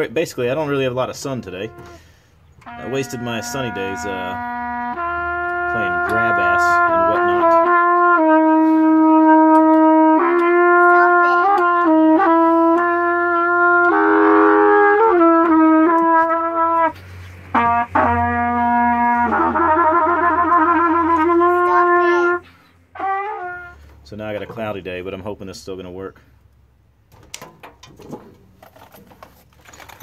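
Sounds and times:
trumpet long notes: 0.8 - 24.0.

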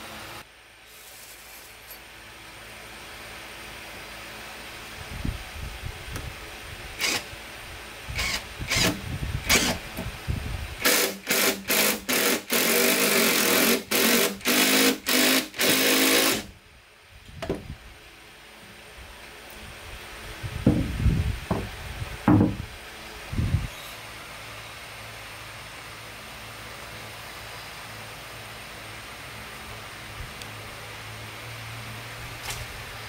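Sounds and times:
cordless drill driving into wood: 7.0 - 7.3, 8.2 - 9.8, 10.8 - 16.5
wood knocking being handled: 22.3 - 22.6.

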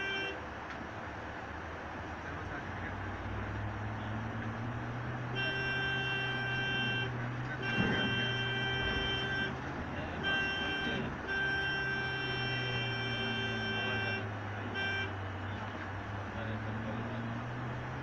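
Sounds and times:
multi-tone horn blasts: 0.0 - 0.4, 5.2 - 15.8
diesel engine droning: 0.0 - 18.0.

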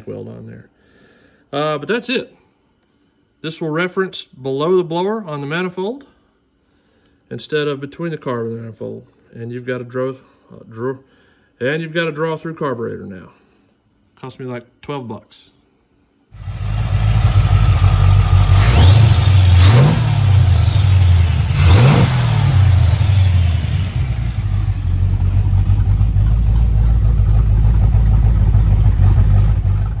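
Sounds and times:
car engine idling and revving: 16.4 - 30.0.

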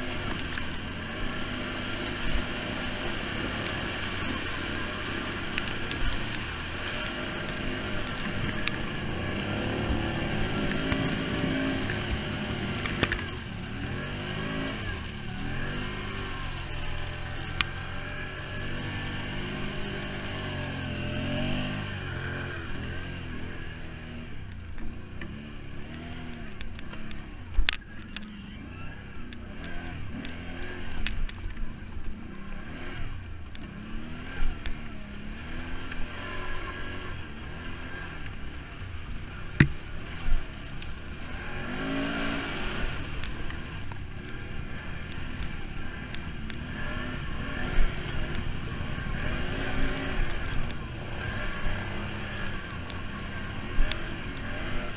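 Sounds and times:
off-road vehicle engine revving: 0.0 - 54.9.

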